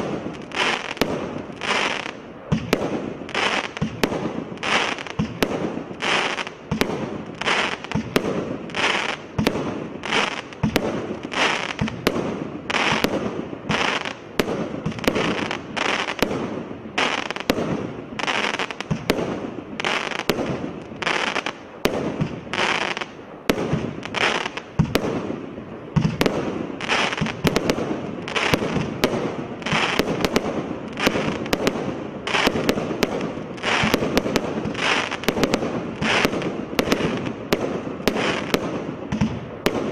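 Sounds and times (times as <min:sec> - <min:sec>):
firework cake firing sharp bangs: 0:00.0 - 0:25.4, 0:26.0 - 0:39.9.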